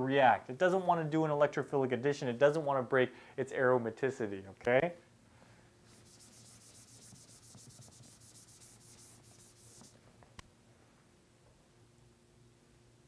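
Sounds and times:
eraser rubbing on whiteboard: 5.9s - 10.0s.

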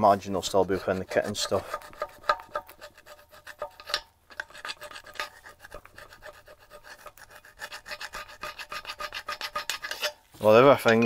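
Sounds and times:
scrubbing metal engine block: 0.0s - 11.0s.

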